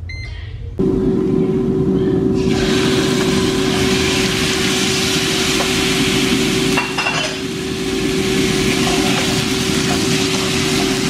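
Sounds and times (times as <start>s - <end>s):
meat sizzling in frying pan: 2.4s - 11.0s.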